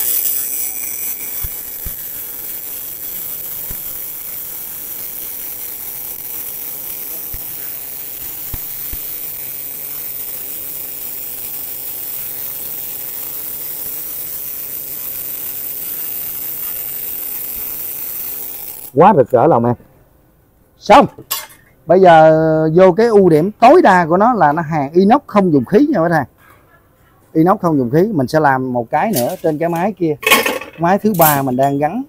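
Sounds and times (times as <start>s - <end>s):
welding arc hissing and popping: 0.0s - 19.4s, 27.4s - 32.0s.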